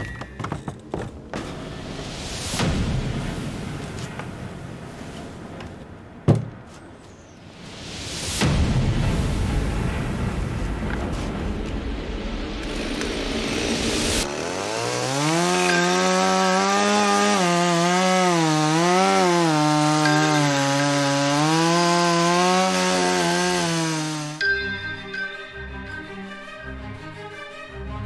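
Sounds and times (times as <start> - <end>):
chainsaw cutting wood: 12.7 - 24.4.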